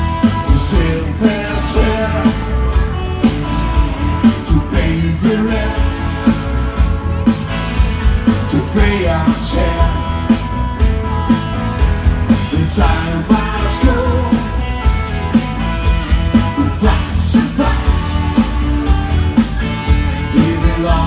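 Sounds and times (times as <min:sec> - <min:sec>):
guitar: 0:00.0 - 0:21.0
steady drum beat: 0:00.0 - 0:21.0
person singing: 0:00.4 - 0:02.5, 0:04.2 - 0:06.3, 0:08.5 - 0:10.4, 0:12.5 - 0:14.6, 0:16.6 - 0:18.4, 0:20.3 - 0:21.0.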